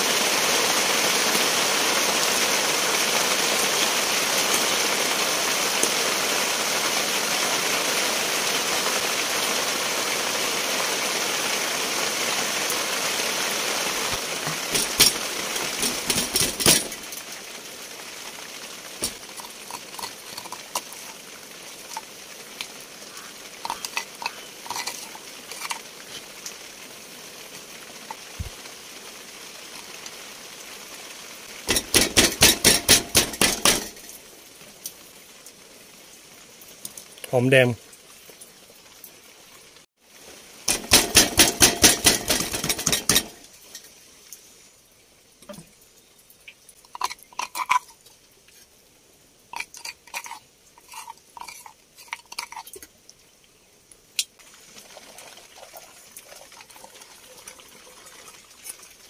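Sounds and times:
steady hiss: 0:00.0 - 0:59.0
kitchen clicks and knocks: 0:14.4 - 0:17.1, 0:19.0 - 0:21.2, 0:31.7 - 0:34.1, 0:40.7 - 0:43.4, 0:46.9 - 0:47.9.

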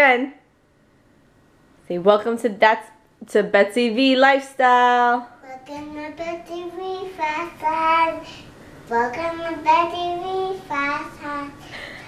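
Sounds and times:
toddler singing and babbling: 0:05.4 - 0:11.7.

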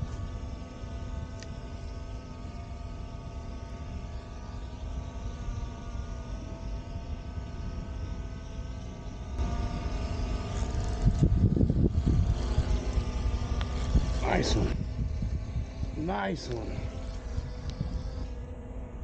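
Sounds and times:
drone propeller hum: 0:00.0 - 0:19.0.

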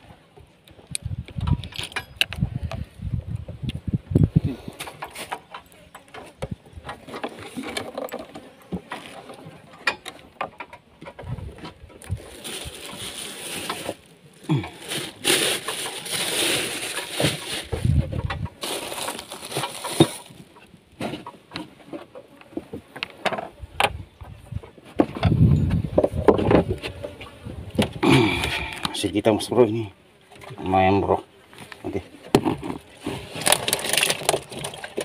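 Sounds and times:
plastic bag rustling: 0:11.5 - 0:21.1, 0:32.4 - 0:35.0.

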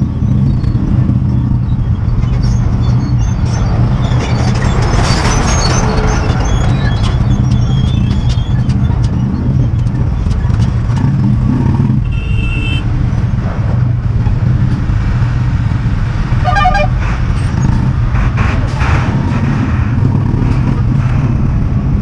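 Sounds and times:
short high horn beep: 0:16.4 - 0:16.9
low horn blast: 0:16.4 - 0:17.0.

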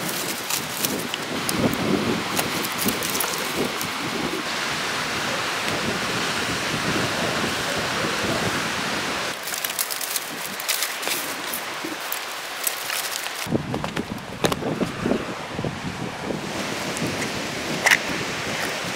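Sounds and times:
twigs crackling and rustling: 0:00.0 - 0:04.4, 0:09.3 - 0:15.0
steady rushing noise: 0:00.0 - 0:18.9.

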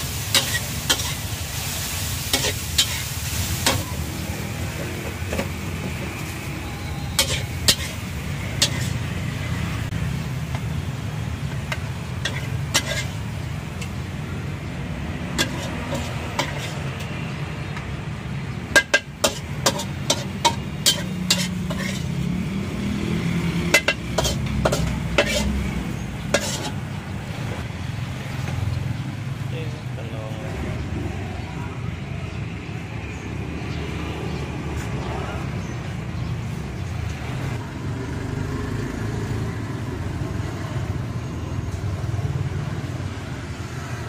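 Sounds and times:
metal spatula scraping a wok: 0:00.0 - 0:05.6, 0:06.2 - 0:09.3, 0:11.5 - 0:14.0, 0:15.3 - 0:17.1, 0:18.7 - 0:22.3, 0:23.6 - 0:27.6
frying sizzle: 0:00.0 - 0:29.4.

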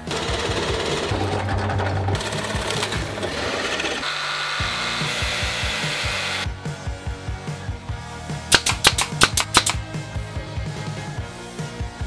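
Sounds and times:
drill press boring wood: 0:02.2 - 0:06.5
jigsaw cutting plywood: 0:02.2 - 0:06.5.

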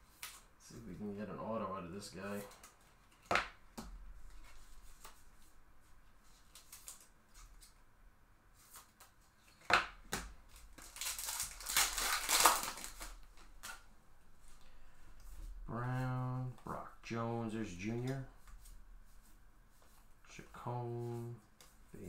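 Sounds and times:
foil wrapper crinkling and tearing: 0:10.5 - 0:13.7.

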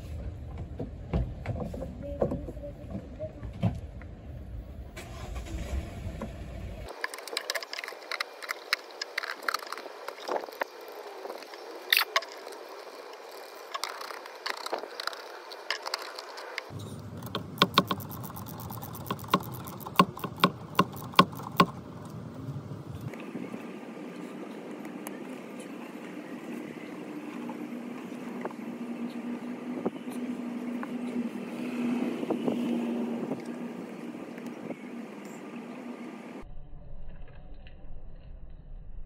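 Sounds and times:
hand tool clicking: 0:17.2 - 0:21.8.

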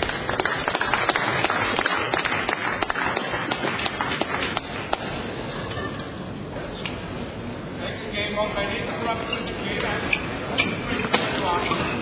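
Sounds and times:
audience applause: 0:00.0 - 0:04.4.

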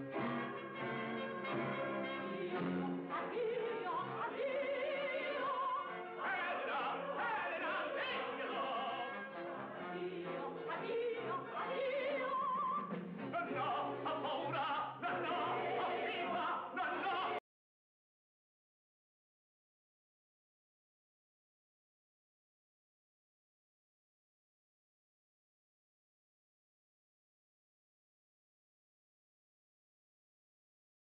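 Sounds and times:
orchestra playing: 0:00.0 - 0:03.2
operatic singing: 0:00.1 - 0:17.4.

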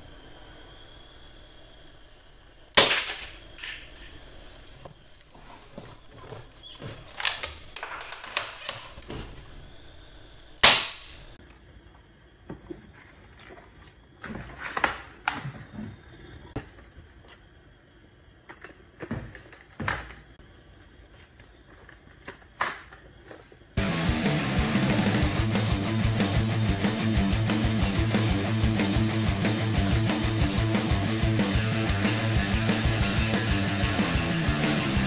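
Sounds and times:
toy dart gun shot: 0:02.8 - 0:03.4, 0:10.6 - 0:11.1.

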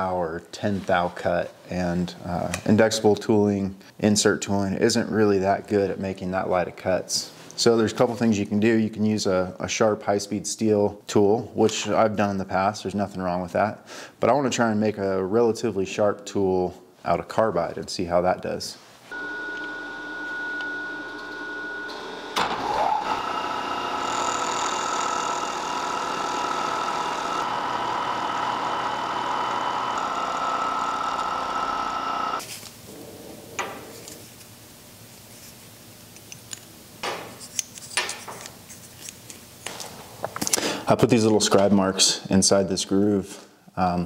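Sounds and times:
milling machine cutting metal: 0:19.2 - 0:32.4.

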